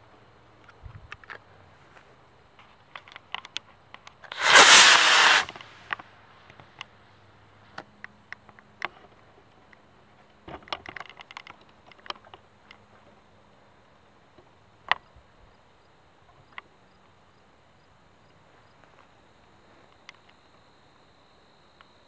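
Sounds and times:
rocket motor hissing: 0:04.3 - 0:06.0.

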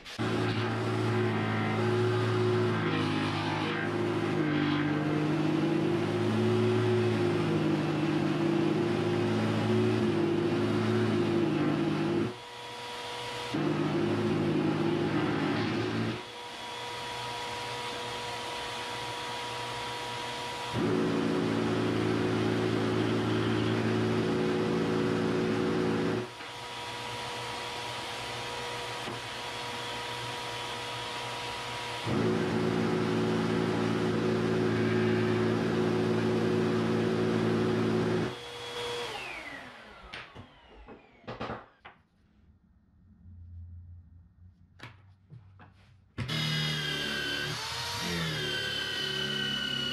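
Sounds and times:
vacuum spinning down whine: 0:00.0 - 0:12.3, 0:20.8 - 0:26.2, 0:32.1 - 0:38.4
shop vacuum running: 0:00.0 - 0:41.7, 0:45.7 - 0:49.9.

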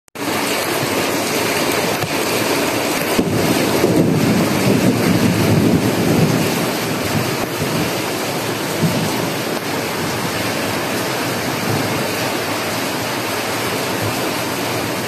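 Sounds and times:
heavy rain on leaves: 0:00.2 - 0:15.0
deep rumble: 0:03.0 - 0:14.6.

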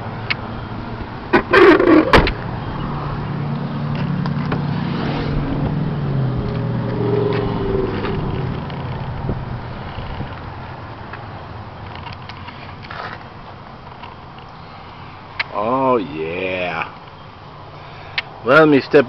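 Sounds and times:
vehicle engine hum: 0:00.0 - 0:15.9
car door clunks: 0:01.3 - 0:02.4.

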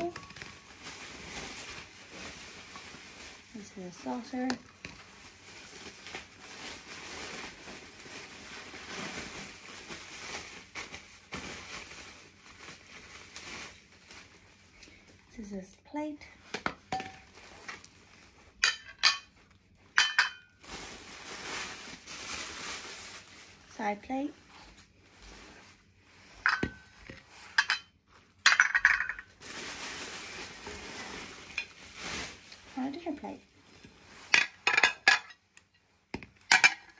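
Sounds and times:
packing material rustling: 0:00.0 - 0:15.5, 0:16.9 - 0:18.6, 0:19.3 - 0:36.9
plastic wrapping crinkling: 0:00.0 - 0:15.7, 0:16.3 - 0:36.9.

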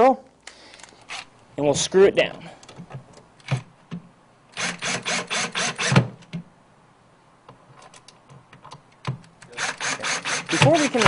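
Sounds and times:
cordless drill driving screws: 0:04.6 - 0:06.1, 0:09.5 - 0:11.0.

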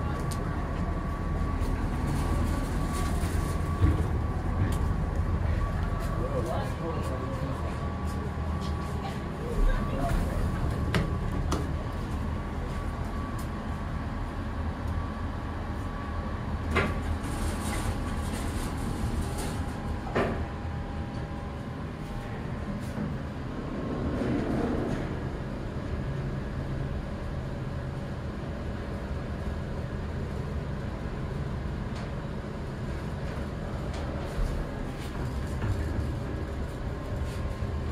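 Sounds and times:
elevator low hum: 0:00.0 - 0:37.9.

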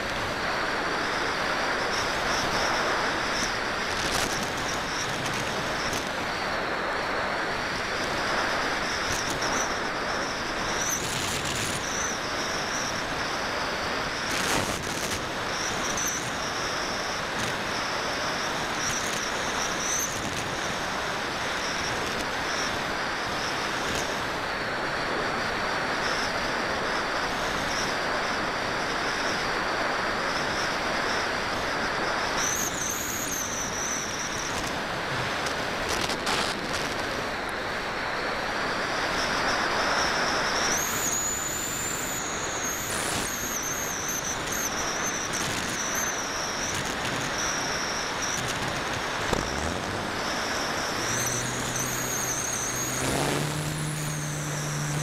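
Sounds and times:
thin high whine: 0:00.0 - 0:55.0
wind rushing over glider: 0:27.9 - 0:55.0.

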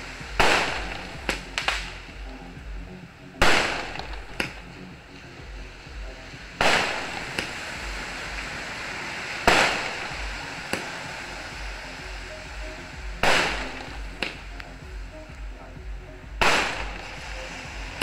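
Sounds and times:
fireworks booming with echo: 0:00.0 - 0:02.8, 0:03.4 - 0:04.9, 0:06.3 - 0:12.2, 0:13.0 - 0:14.6, 0:16.4 - 0:18.0
sharp firework crack: 0:00.3 - 0:02.1, 0:03.4 - 0:04.8, 0:06.3 - 0:11.9, 0:13.2 - 0:14.4, 0:16.4 - 0:17.3.

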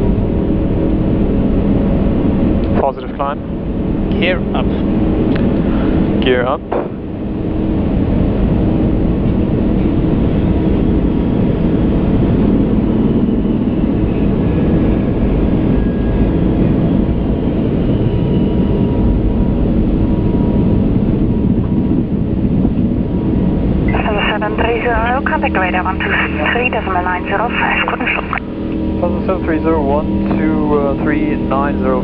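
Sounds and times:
airflow and engine rumble: 0:00.0 - 0:32.0
faint steady tones: 0:23.7 - 0:32.0.

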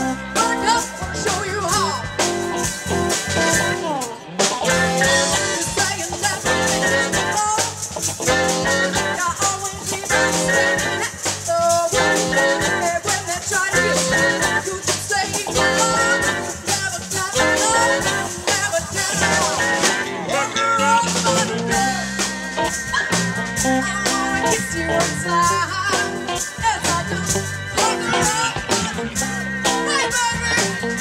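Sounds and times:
drum kit: 0:00.0 - 0:31.0
electric guitar: 0:00.0 - 0:31.0
keyboard: 0:00.0 - 0:31.0
saxophone: 0:01.7 - 0:07.6, 0:08.2 - 0:09.4, 0:10.0 - 0:16.7, 0:17.3 - 0:31.0
woman singing into a microphone: 0:09.0 - 0:22.0, 0:22.9 - 0:30.8.

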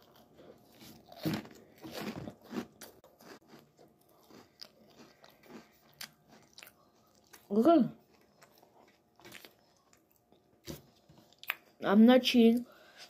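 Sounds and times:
crunchy snack chewing: 0:00.0 - 0:07.5, 0:08.1 - 0:10.2.

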